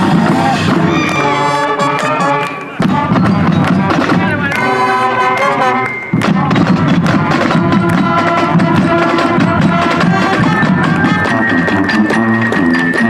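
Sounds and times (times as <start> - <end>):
brass chord: 0.0 - 12.1
marching band playing: 0.0 - 13.0
snare and bass drums beating: 0.0 - 13.0.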